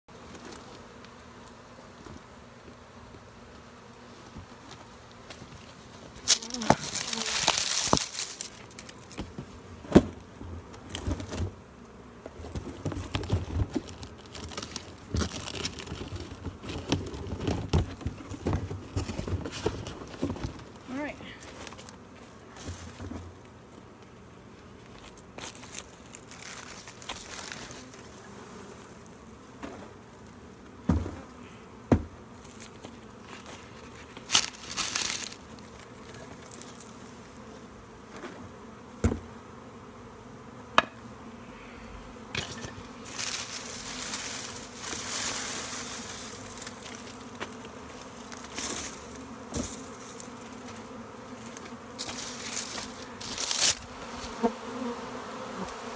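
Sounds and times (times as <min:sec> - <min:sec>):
bee swarm buzzing: 0:00.1 - 0:55.9
rustling: 0:05.1 - 0:11.5, 0:12.4 - 0:23.2, 0:24.8 - 0:28.1, 0:32.4 - 0:37.5, 0:42.4 - 0:54.5.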